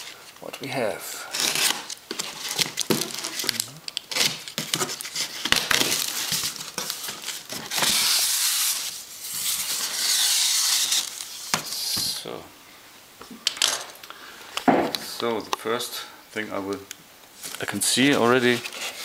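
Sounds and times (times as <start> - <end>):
packing rustling scrapes: 1.3 - 12.0, 17.4 - 19.0.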